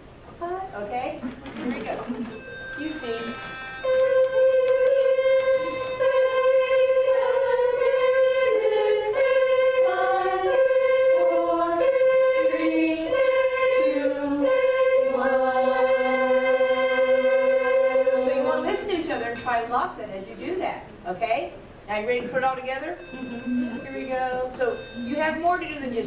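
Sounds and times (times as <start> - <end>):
unaccompanied chorus singing: 3.2 - 19.5.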